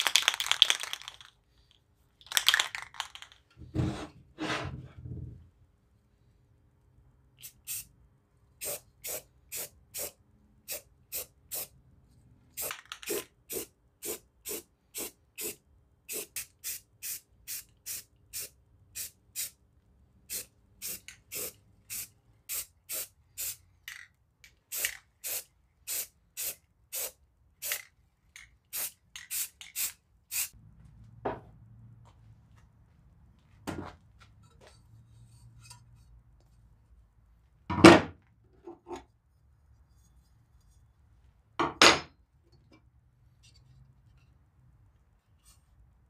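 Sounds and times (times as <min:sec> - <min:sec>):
paint spray hissing bursts: 0:07.4 - 0:07.9, 0:08.6 - 0:11.7, 0:12.6 - 0:19.6, 0:20.3 - 0:23.6, 0:24.7 - 0:27.8, 0:28.7 - 0:30.5.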